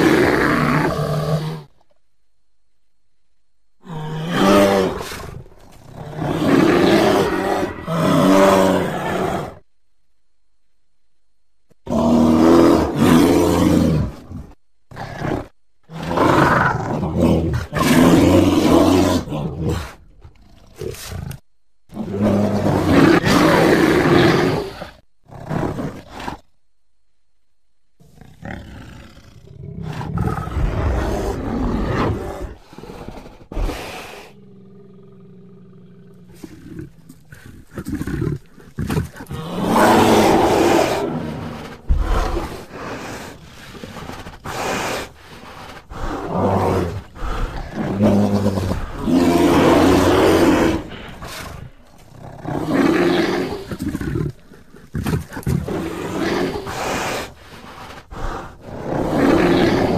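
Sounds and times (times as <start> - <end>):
bear growling and roaring: 0.0 - 1.9, 3.8 - 9.7, 11.8 - 26.6, 28.0 - 59.9
low steady animal call: 3.8 - 9.7, 28.0 - 59.9.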